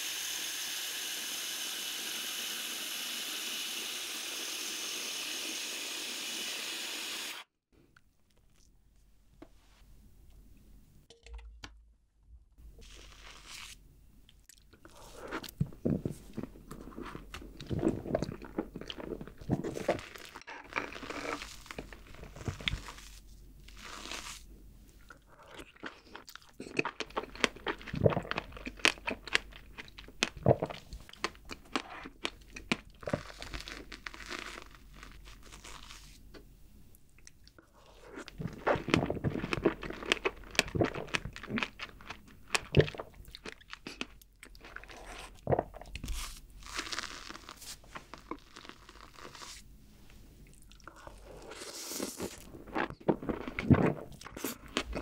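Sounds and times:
wet crunchy chewing: 25.4 - 36.1, 37.2 - 49.6, 50.5 - 55.0.

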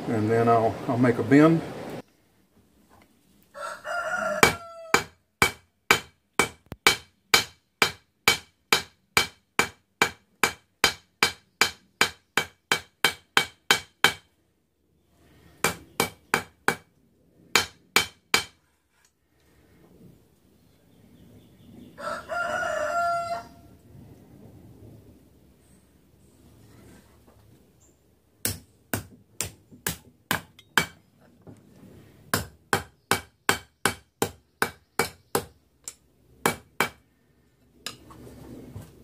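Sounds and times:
rooster crowing: 3.5 - 5.1, 21.9 - 23.7
hammer striking steel on anvil: 5.0 - 14.2.

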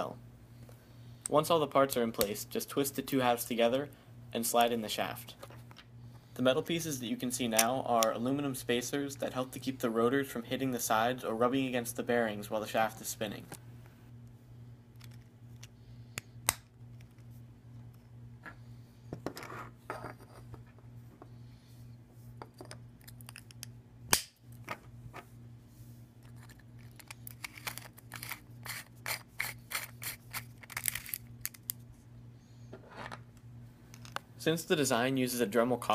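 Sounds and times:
steady low hum: 0.0 - 35.9
plastic and metal parts clicking: 26.2 - 31.8.

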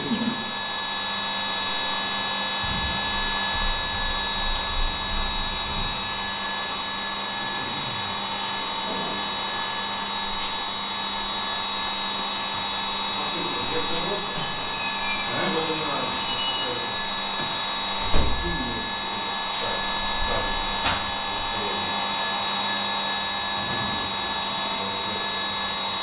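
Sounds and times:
milling machine spindle whine: 0.0 - 26.0
low hum: 1.6 - 6.8.

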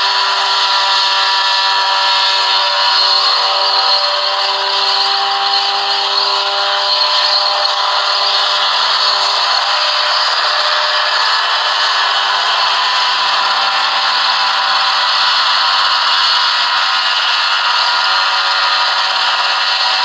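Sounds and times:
helicopter engine and rotor: 0.0 - 20.0.

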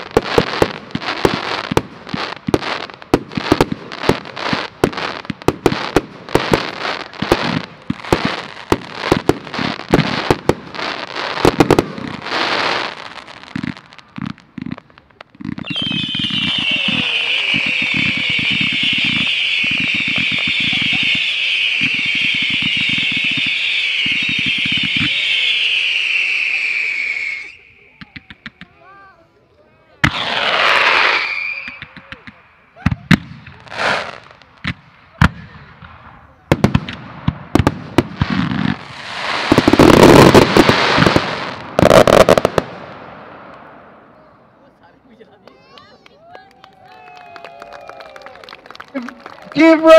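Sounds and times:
fireworks firing low thuds: 0.0 - 25.8, 30.0 - 44.0
high hiss of burning fireworks: 0.0 - 46.1.

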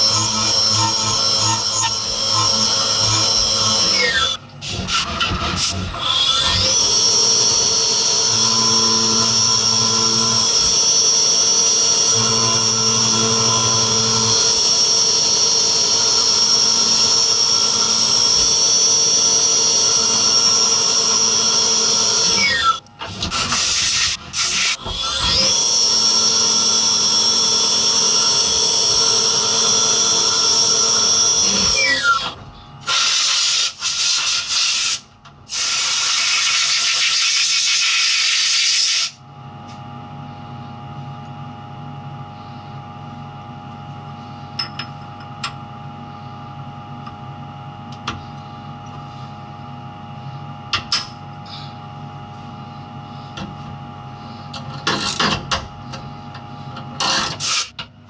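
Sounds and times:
machine spindle whine: 0.0 - 34.9.

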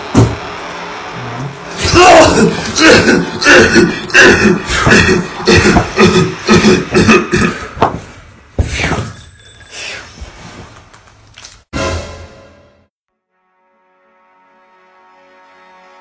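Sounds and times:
forceful vocal grunts: 1.8 - 7.8.

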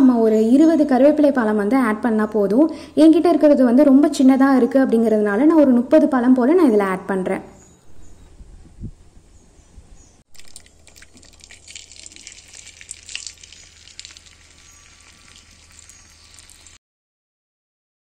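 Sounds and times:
hot oil sizzling and crackling: 10.3 - 16.8.

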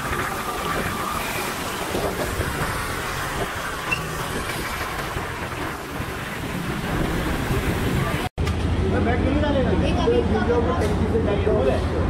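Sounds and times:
tyres hissing on wet road: 0.0 - 8.3.

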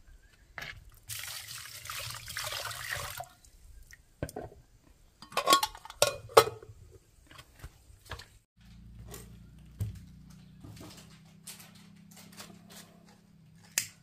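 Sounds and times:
water pouring: 0.9 - 3.5
sharp knocks and clatters: 8.6 - 13.8.

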